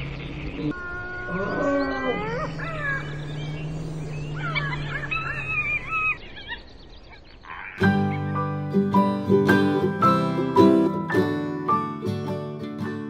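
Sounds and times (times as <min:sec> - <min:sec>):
whistled animal calls: 0:00.6 - 0:07.8.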